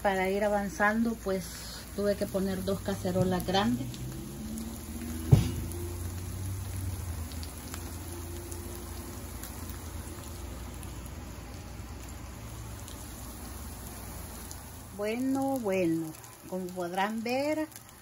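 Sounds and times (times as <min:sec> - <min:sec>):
fish sizzling in oil: 0:00.0 - 0:18.0
sharp knock: 0:05.2 - 0:05.7.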